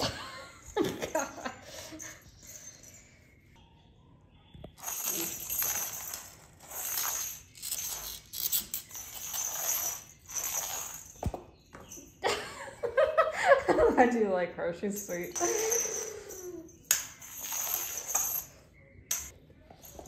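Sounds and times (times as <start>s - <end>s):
light metallic jingle: 0.0s - 3.6s, 4.8s - 12.8s, 14.7s - 20.0s
woman speaking: 13.7s - 15.9s.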